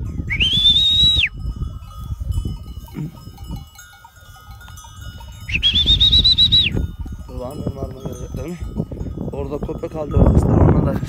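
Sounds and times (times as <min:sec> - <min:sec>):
wind rumble on microphone: 0:00.0 - 0:11.0
person whistling for dogs: 0:00.3 - 0:01.4, 0:05.5 - 0:06.8.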